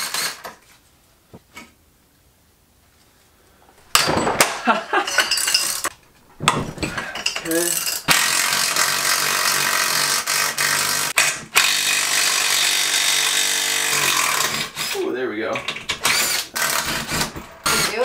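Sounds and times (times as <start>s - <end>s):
cordless drill running: 8.1s - 14.9s, 16.0s - 17.2s.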